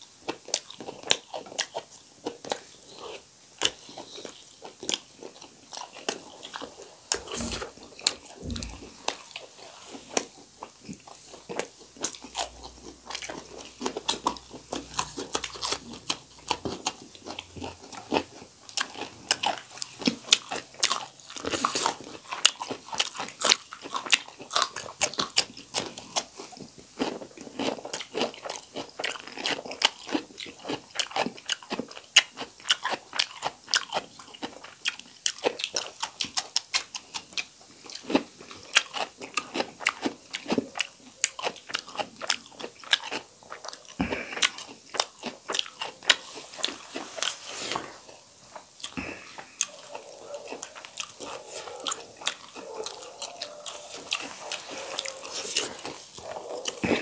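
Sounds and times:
crunching and chewing vegetables: 0.0s - 57.0s.

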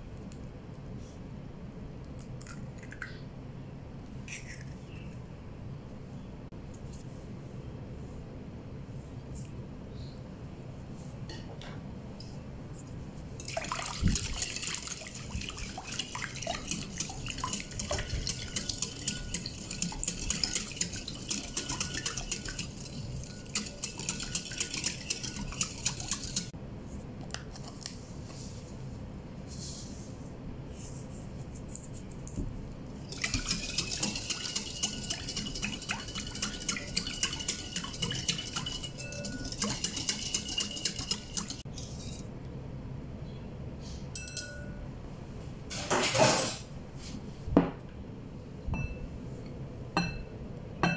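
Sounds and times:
whisk clicking against bowl: 13.4s - 26.5s, 33.1s - 41.6s
faint ringing bowl: 38.6s - 40.0s, 44.2s - 45.0s, 48.7s - 49.2s.

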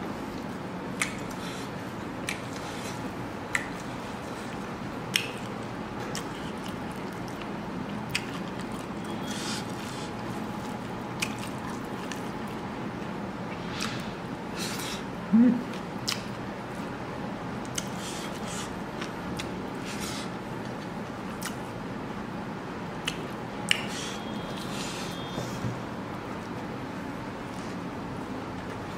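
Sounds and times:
chewing and wet mouth smacks: 2.2s - 9.9s, 10.6s - 13.1s, 15.7s - 16.4s, 17.6s - 19.5s, 20.1s - 21.7s, 23.0s - 24.2s.

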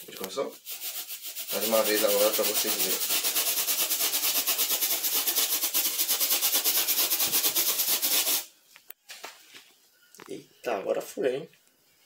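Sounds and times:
balloon rubbing on hair: 0.3s - 8.5s.

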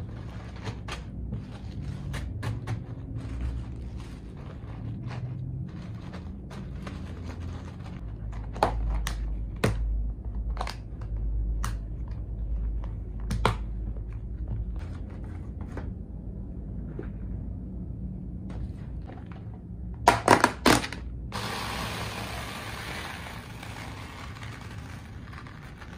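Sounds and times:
plastic bags crinkling: 23.2s - 25.9s.

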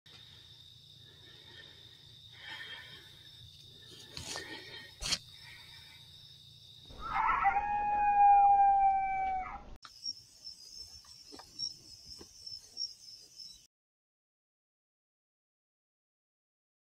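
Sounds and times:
insects trilling: 0.1s - 9.0s, 9.8s - 13.7s
long animal call: 6.9s - 9.8s.

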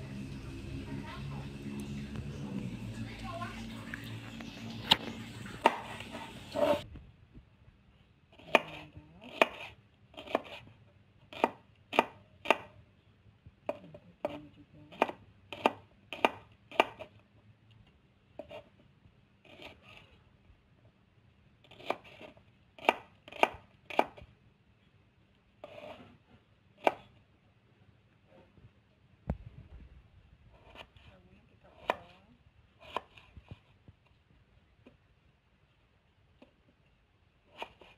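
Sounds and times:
knife chopping on wooden board: 5.6s - 6.8s, 8.4s - 10.6s, 11.3s - 12.8s, 13.7s - 17.1s, 21.7s - 24.2s, 26.8s - 27.1s, 31.8s - 32.1s, 32.8s - 33.3s.

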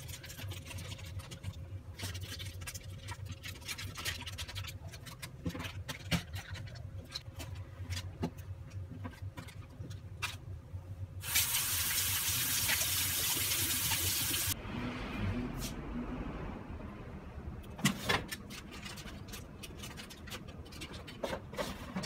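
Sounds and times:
aluminium foil crinkling: 0.0s - 8.2s, 18.3s - 21.2s.

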